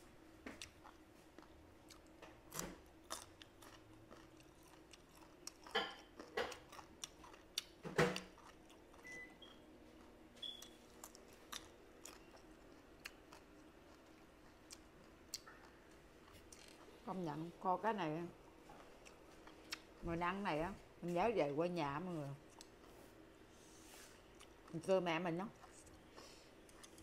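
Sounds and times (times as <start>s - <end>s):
person chewing crunchy vegetables: 0.5s - 17.1s, 18.6s - 20.0s, 22.4s - 23.1s, 24.1s - 27.0s.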